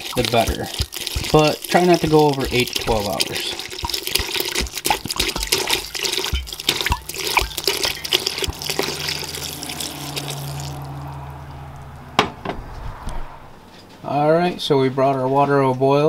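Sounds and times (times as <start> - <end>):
water pouring into metal pot: 0.0 - 11.4
sharp knock: 12.2 - 12.7.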